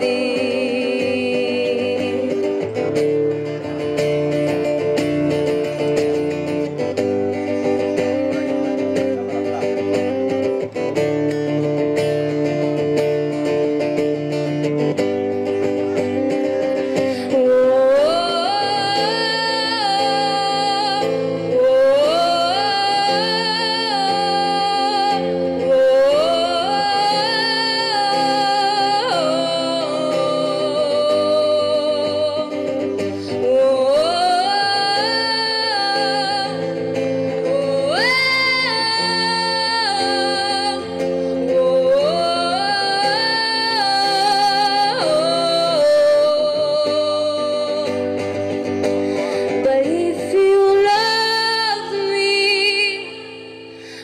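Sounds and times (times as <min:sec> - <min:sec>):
girl singing ballad: 0:00.0 - 0:03.6, 0:15.5 - 0:54.0
acoustic guitar strumming: 0:00.0 - 0:54.0.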